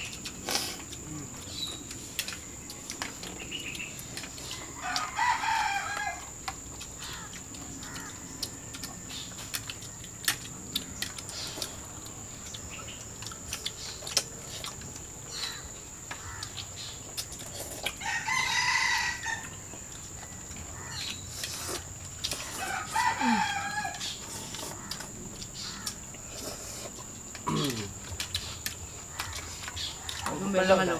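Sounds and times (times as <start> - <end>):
rooster crowing: 4.5 - 6.3, 18.0 - 19.6, 22.4 - 25.0.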